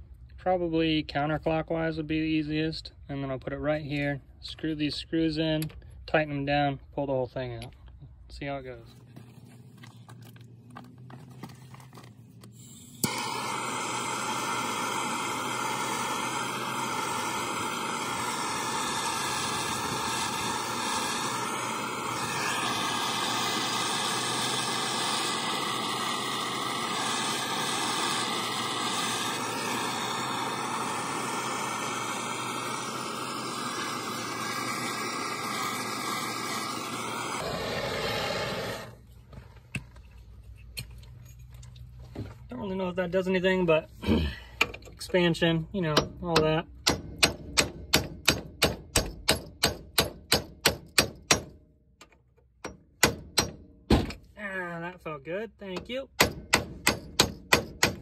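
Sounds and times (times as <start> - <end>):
gas torch flame hissing: 12.5 - 39.0
gas torch lighting click: 13.0 - 37.4.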